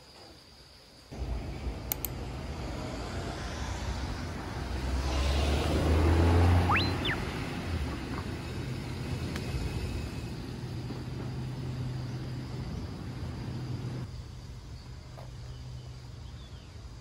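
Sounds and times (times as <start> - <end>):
car passing: 1.1 - 14.1
high sweeping chirp: 1.2 - 8.0.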